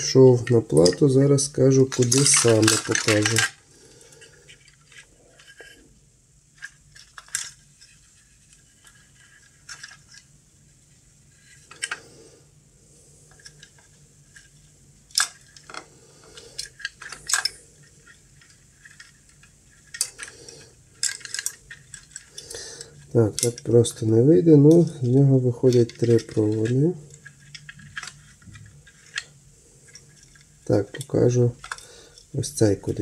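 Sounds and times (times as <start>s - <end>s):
faint low hum: 0.0s - 33.0s
light clicks and metallic clinks: 19.9s - 24.0s.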